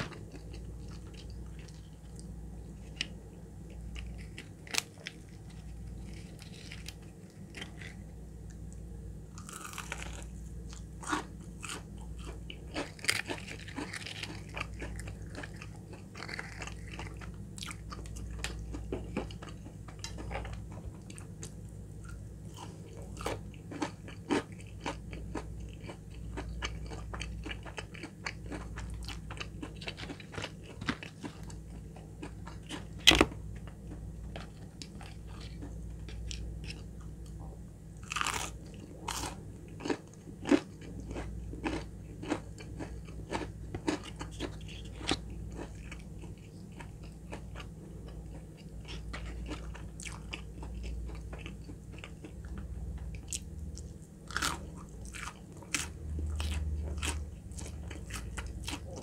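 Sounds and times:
crunching and chewing: 0:00.0 - 0:59.0.

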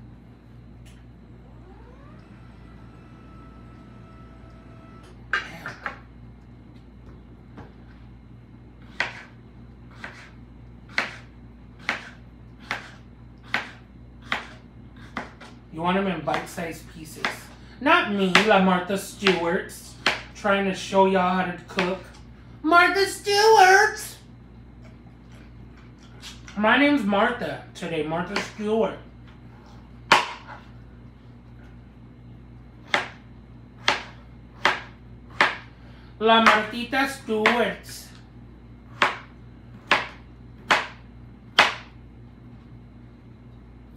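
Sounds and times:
knife chopping on cutting board: 0:08.8 - 0:15.6, 0:19.2 - 0:20.3, 0:30.1 - 0:30.6, 0:32.8 - 0:33.2, 0:33.8 - 0:35.7, 0:36.4 - 0:36.8, 0:38.9 - 0:41.9
knife slicing on plastic cutting board: 0:08.9 - 0:09.3, 0:09.9 - 0:15.4.

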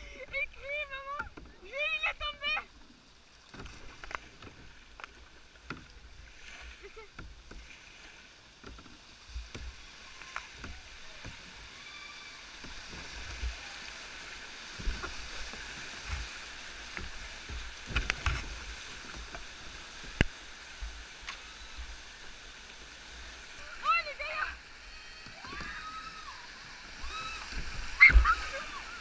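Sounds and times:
paddle splashes: 0:00.0 - 0:29.0
whitewater rushing: 0:09.7 - 0:29.0.

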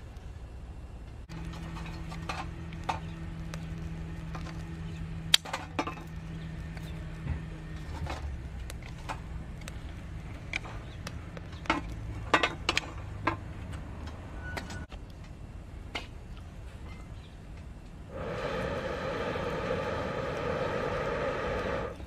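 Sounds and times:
twig fire crackling: 0:00.0 - 0:13.9, 0:17.5 - 0:22.0
low steady hum: 0:00.0 - 0:22.0.

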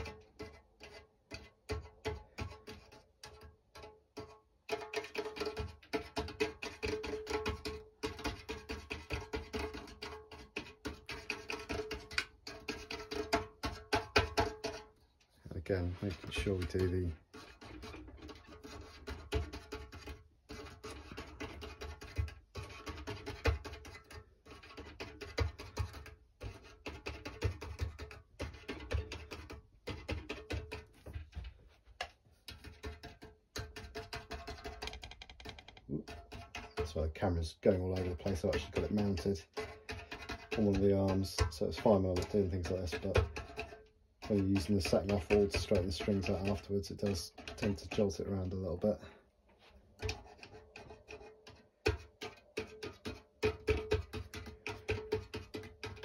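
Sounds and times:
hand tool clicking on strings: 0:33.6 - 0:37.0, 0:37.9 - 0:48.6.

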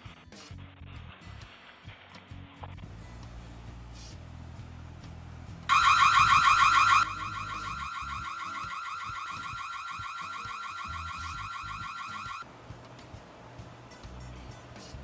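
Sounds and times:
electronic siren sweeping: 0:05.7 - 0:12.4.

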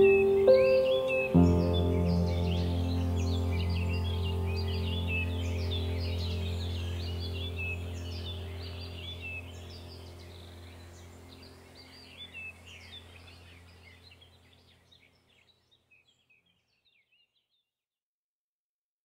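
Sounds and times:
steady low hum: 0:00.0 - 0:14.9
birds chirping: 0:00.0 - 0:17.4.

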